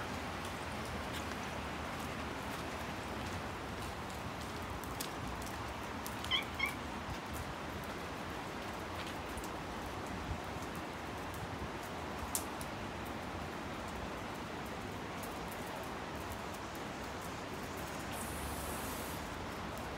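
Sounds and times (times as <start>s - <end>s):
rain hissing: 0.0s - 19.9s
cat meows: 6.2s - 6.8s.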